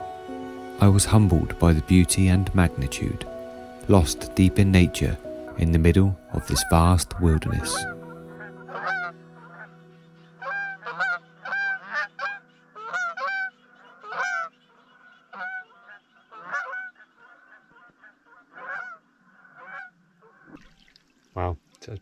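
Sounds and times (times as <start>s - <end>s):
held music chord: 0.0s - 14.0s
geese honking: 0.0s - 20.6s.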